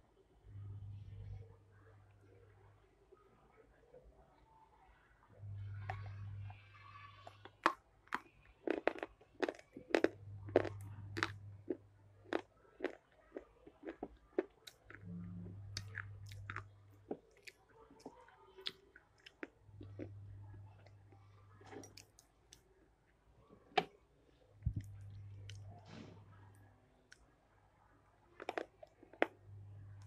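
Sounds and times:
crunching and chewing: 0:07.4 - 0:22.9, 0:24.6 - 0:26.0, 0:28.3 - 0:30.0.

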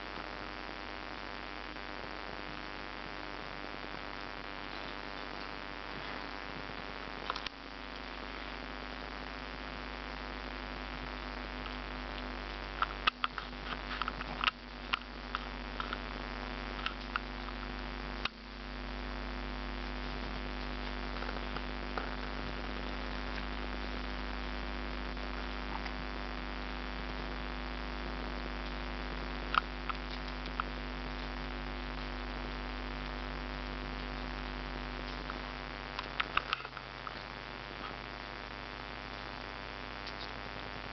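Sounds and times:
steady electrical hum: 0:00.0 - 0:40.9
rustles: 0:11.0 - 0:18.4.

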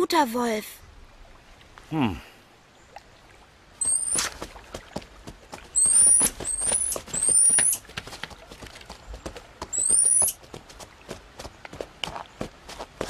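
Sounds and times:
high whistled chirps: 0:03.8 - 0:04.3, 0:05.8 - 0:07.8, 0:09.8 - 0:10.4
hooves plodding through snow: 0:04.1 - 0:13.0.

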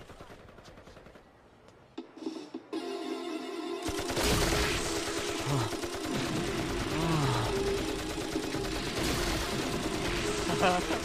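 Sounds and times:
rapid automatic gunfire effects: 0:00.0 - 0:01.4, 0:03.9 - 0:11.0.

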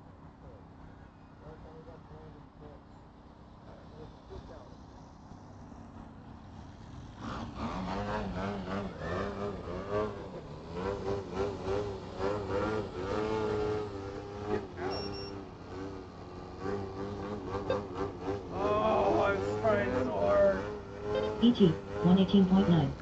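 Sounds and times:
quadcopter motors whining: 0:07.4 - 0:23.0
short high beep: 0:14.9 - 0:15.4.

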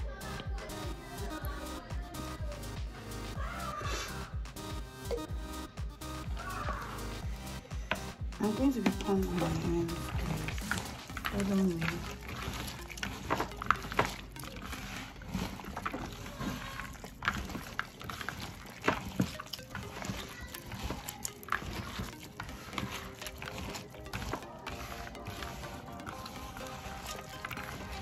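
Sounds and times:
hand squelching wet soap: 0:06.2 - 0:28.0.

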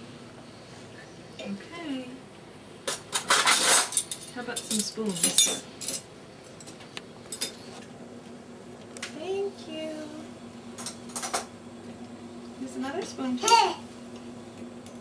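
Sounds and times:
dishes and cutlery clinking: 0:02.9 - 0:07.6.

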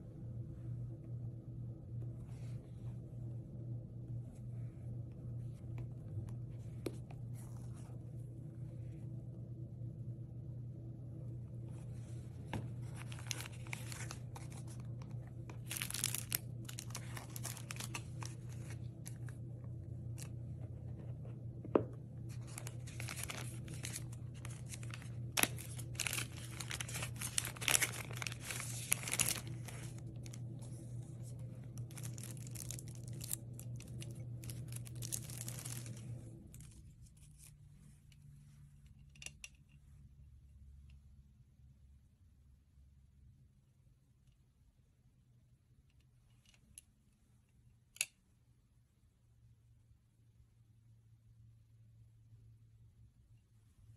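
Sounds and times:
steady low hum: 0:00.0 - 0:53.9
plastic wrapping crinkling: 0:12.7 - 0:19.4, 0:22.3 - 0:37.5.

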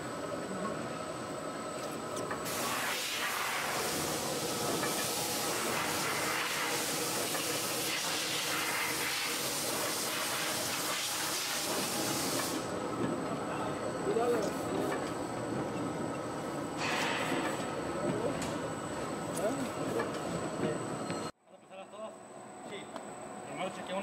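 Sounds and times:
steady hiss: 0:02.4 - 0:12.8.

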